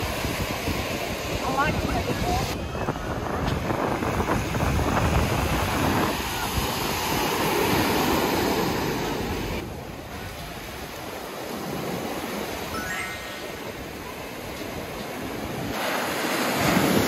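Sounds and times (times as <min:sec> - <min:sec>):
wind buffeting microphone: 0:00.0 - 0:12.7
surf breaking on a beach: 0:00.0 - 0:17.0.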